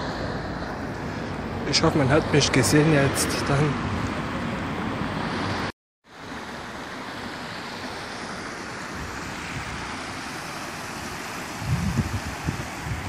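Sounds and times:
water rushing over stone weirs: 0.0s - 13.0s
wind rumble on microphone: 8.8s - 10.2s, 11.0s - 13.0s.

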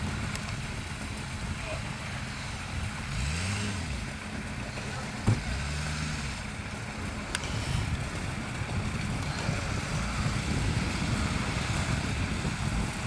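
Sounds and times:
engine revving: 1.3s - 13.0s
wind on microphone: 7.3s - 13.0s.

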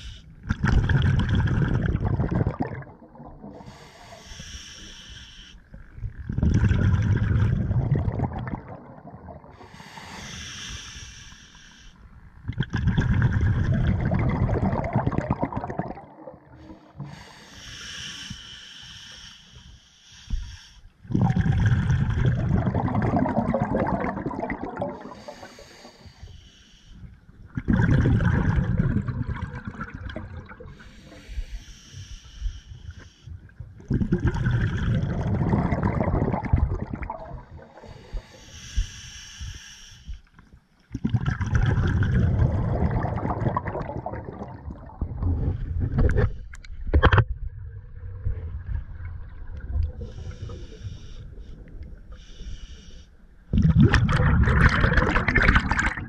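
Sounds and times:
exhaled bubbles underwater: 0.0s - 3.9s, 5.9s - 9.9s, 12.4s - 17.3s, 21.0s - 25.7s, 27.4s - 31.4s, 33.4s - 38.4s, 40.8s - 52.2s, 53.5s - 56.0s.

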